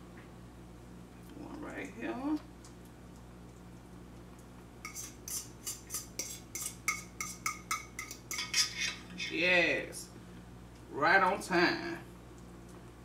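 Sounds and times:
metal spoon clinking in bowl: 0:04.9 - 0:09.3.

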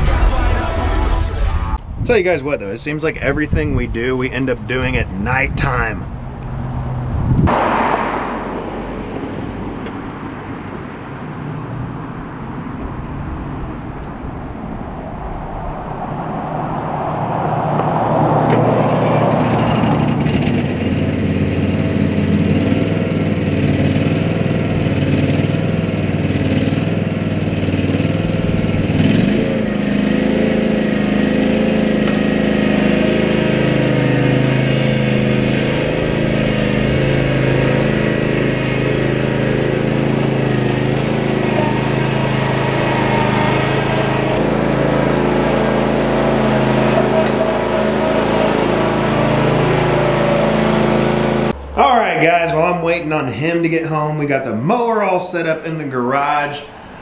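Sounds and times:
mower engine running: 0:18.4 - 0:54.2.

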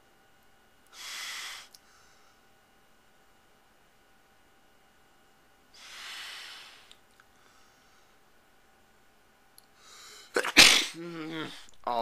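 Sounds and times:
man's deep breath: 0:09.8 - 0:10.3.

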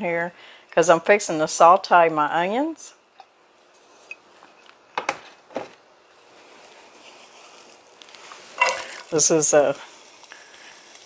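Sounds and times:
oil hissing in a skillet: 0:06.0 - 0:11.0.

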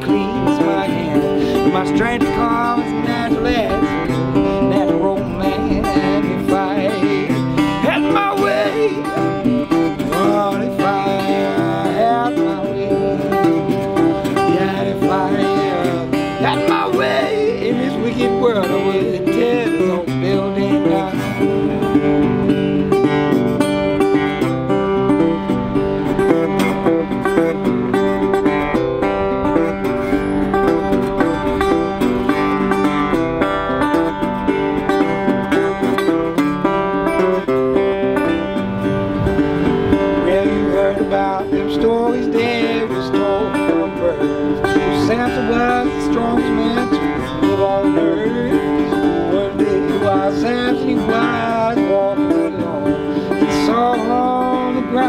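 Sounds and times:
resonator guitar blues solo: 0:00.0 - 0:55.0.

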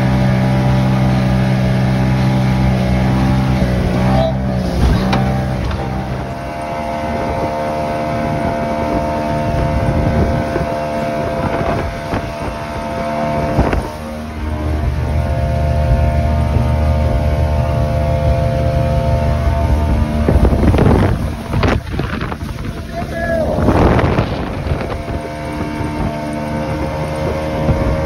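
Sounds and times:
outboard motor running: 0:00.0 - 0:28.0
water rushing: 0:00.0 - 0:28.0
wind rushing: 0:19.2 - 0:28.0.

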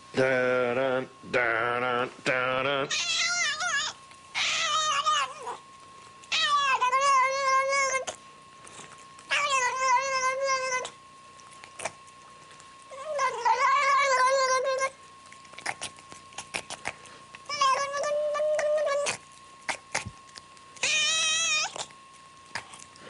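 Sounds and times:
cat yowling: 0:02.9 - 0:05.6, 0:06.2 - 0:08.2, 0:09.3 - 0:11.0, 0:12.8 - 0:15.0, 0:17.4 - 0:19.2, 0:20.8 - 0:21.9.

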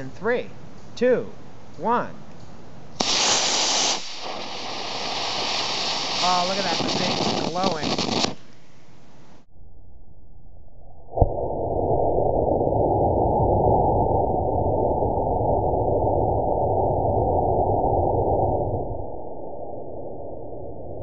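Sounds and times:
rocket motor rushing hiss: 0:03.0 - 0:08.7.

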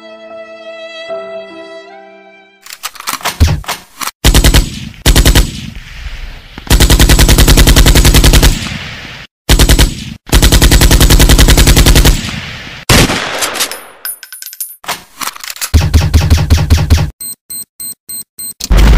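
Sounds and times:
machine-gun fire: 0:04.2 - 0:05.8, 0:06.7 - 0:08.8, 0:09.5 - 0:13.7.

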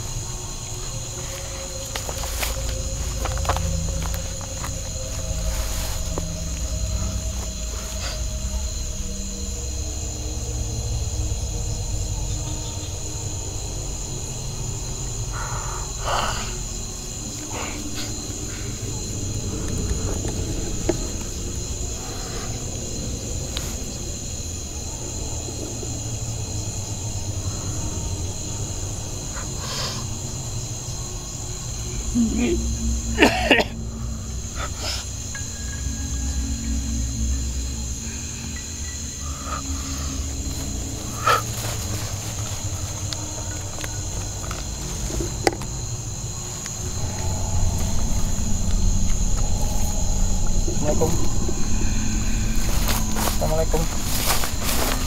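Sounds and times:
crickets trilling: 0:00.0 - 0:55.0
low rumble: 0:00.0 - 0:55.0
low steady rumble: 0:30.1 - 0:55.0.

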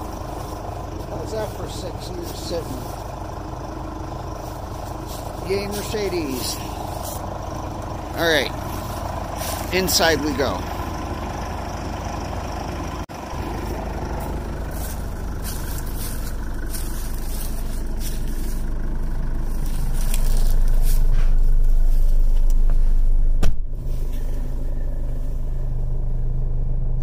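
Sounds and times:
diesel engine idling: 0:00.0 - 0:27.0
car door shutting: 0:22.3 - 0:24.3.

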